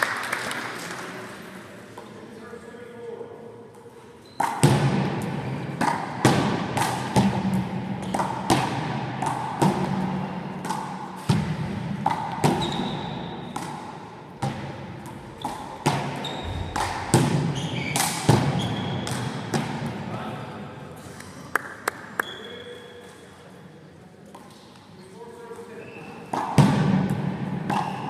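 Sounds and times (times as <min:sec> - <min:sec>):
shoes squeaking on floor: 0:04.1 - 0:04.6, 0:12.4 - 0:13.5, 0:15.3 - 0:19.3, 0:22.2 - 0:23.2, 0:25.7 - 0:26.4
ball smacking wall and floor: 0:04.4 - 0:14.8, 0:15.4 - 0:19.9, 0:26.4 - 0:28.0.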